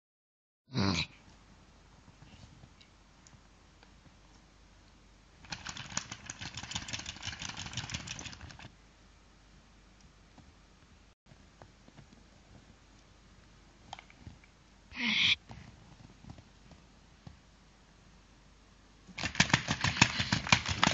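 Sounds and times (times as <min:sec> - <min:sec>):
toy doll crackly clicking: 0:05.4 - 0:08.7, 0:19.2 - 0:20.9.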